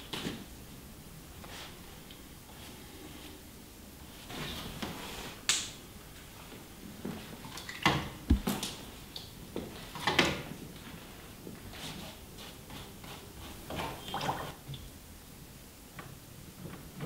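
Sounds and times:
dull low thump: 8.3s - 8.6s.

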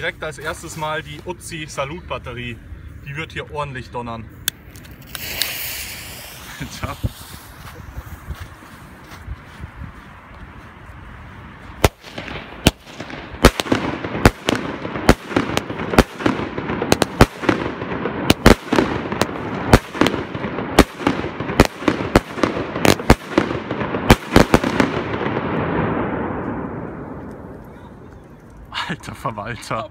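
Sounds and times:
firework hiss: 4.9s - 8.3s
steady rushing noise: 4.9s - 27.6s
firework bangs: 5.0s - 8.0s, 11.8s - 27.6s.

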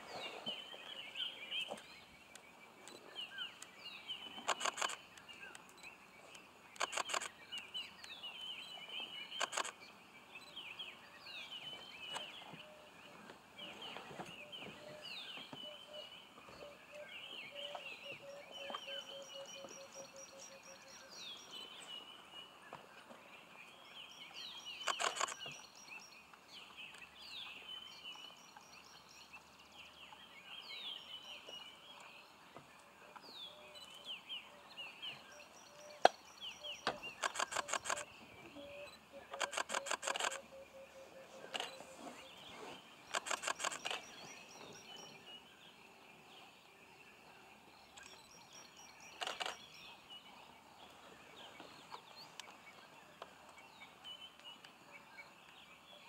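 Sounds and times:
bursts of clicks: 37.2s - 38.1s, 39.3s - 40.4s, 43.1s - 44.1s.

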